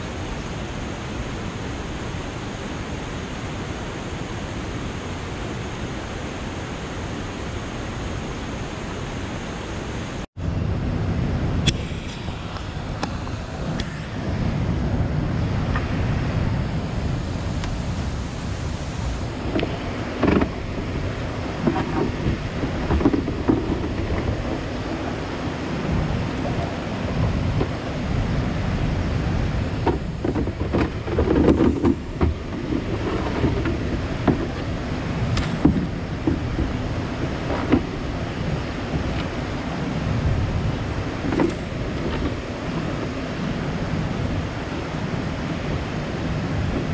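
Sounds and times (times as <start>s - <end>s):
steady rushing noise: 0.0s - 46.9s
gear knocking inside plastic kayak: 19.5s - 20.6s, 21.6s - 25.1s, 29.8s - 38.0s.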